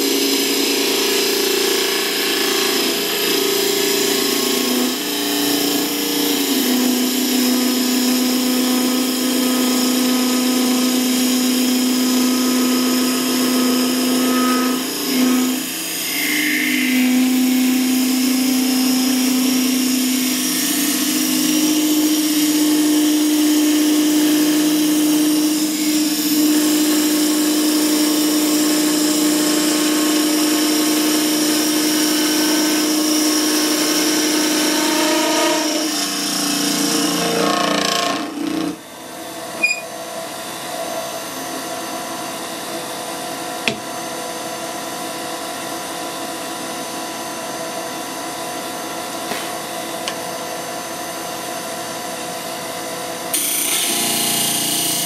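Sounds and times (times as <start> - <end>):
wood lathe humming: 0.0 - 38.9, 43.6 - 44.0, 53.3 - 55.0.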